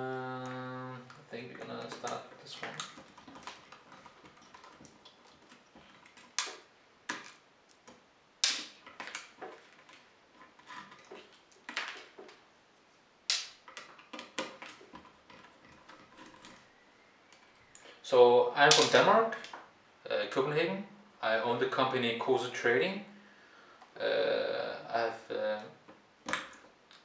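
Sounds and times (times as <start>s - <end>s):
hands handling speaker parts: 0.0s - 18.0s.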